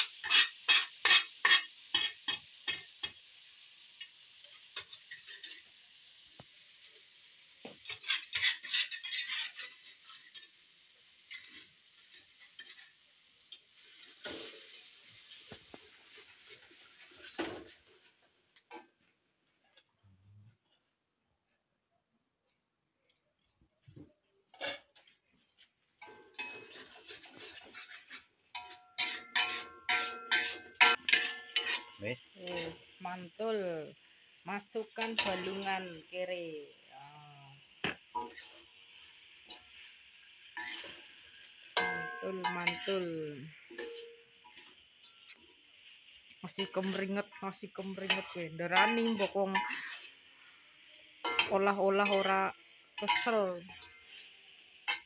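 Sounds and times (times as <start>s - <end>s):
metal spatula scraping: 0.0s - 3.2s, 4.4s - 5.8s, 7.7s - 18.1s, 24.5s - 25.1s, 26.0s - 33.0s, 35.0s - 36.0s, 37.5s - 55.0s
oil sizzling in a wok: 0.0s - 21.2s, 23.0s - 55.0s.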